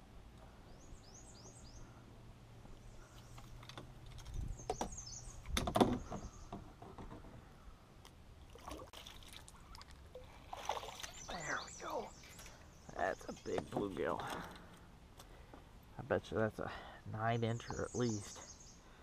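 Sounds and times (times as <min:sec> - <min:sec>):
small birds chirping: 0:00.4 - 0:07.8, 0:10.7 - 0:19.0
knocks and clatter of gear: 0:03.3 - 0:07.3.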